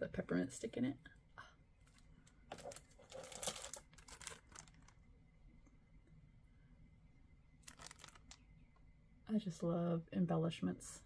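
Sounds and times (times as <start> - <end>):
plastic packaging crinkling: 2.5 - 5.1, 7.6 - 8.5.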